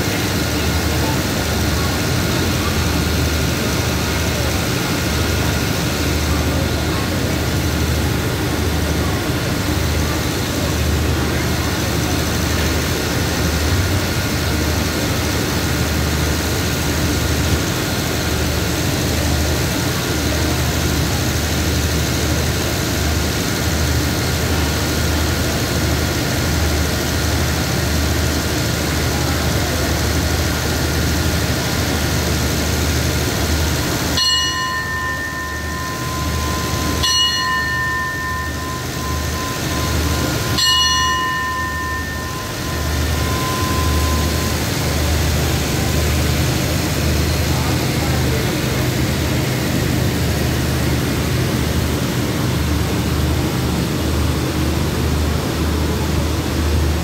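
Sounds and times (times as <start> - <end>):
diesel train engine humming: 0.0 - 57.0
bell-like ring: 34.1 - 46.7.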